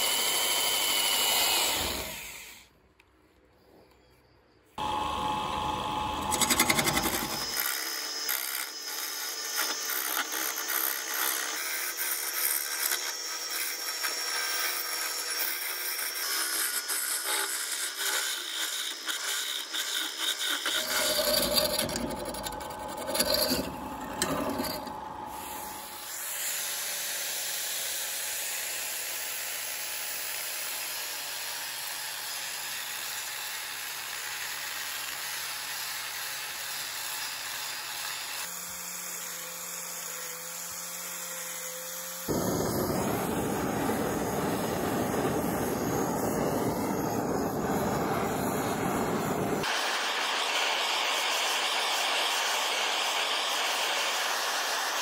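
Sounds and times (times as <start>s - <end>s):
angle grinder sanding wood: 4.8s - 27.9s, 35.2s - 55.0s
gouge scraping spinning wood: 6.1s - 26.1s, 42.0s - 49.7s
blowtorch roaring: 20.8s - 26.0s, 42.3s - 55.0s.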